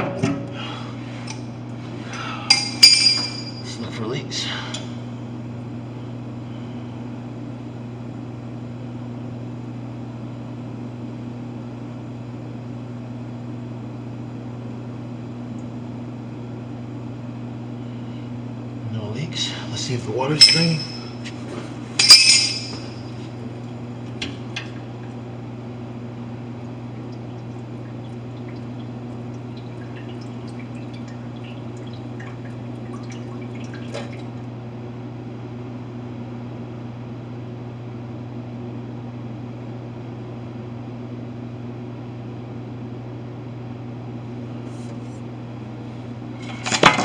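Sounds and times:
constant low hum: 0:00.0 - 0:47.0
sharp metallic clink: 0:20.4 - 0:21.2, 0:22.0 - 0:23.0
water running through drinking fountain: 0:26.3 - 0:34.5.

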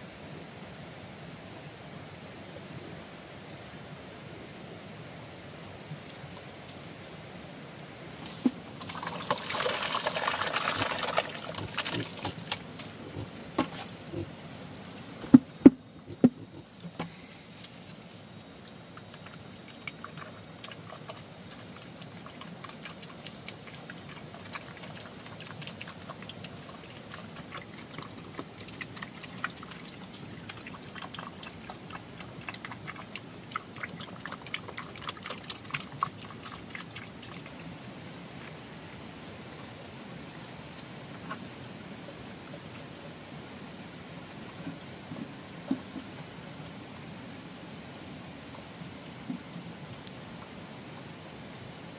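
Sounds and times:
water splashing: 0:08.2 - 0:17.0.

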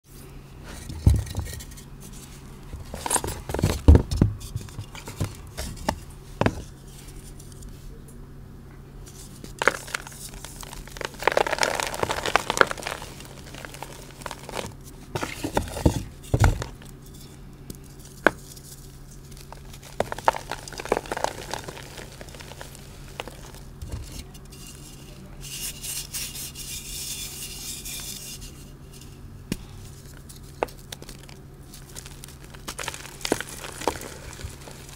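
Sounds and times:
chalk blocks crunching and snapping: 0:02.8 - 0:07.7, 0:09.1 - 0:25.0, 0:29.5 - 0:34.9.

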